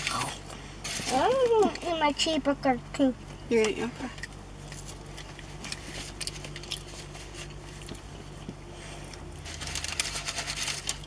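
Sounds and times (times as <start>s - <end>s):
low steady hum: 0.0s - 11.0s
chewing fries: 4.2s - 11.0s.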